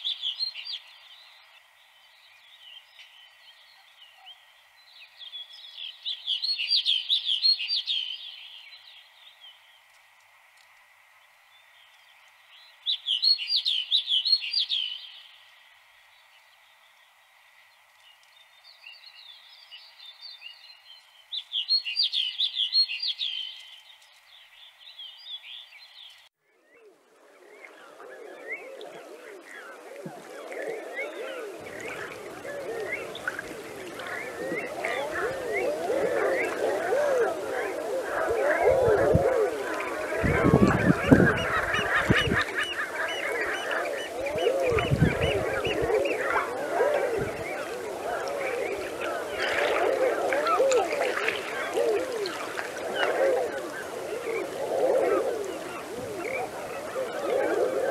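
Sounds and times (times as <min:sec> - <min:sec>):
ducks cooing: 0:27.6 - 0:57.9.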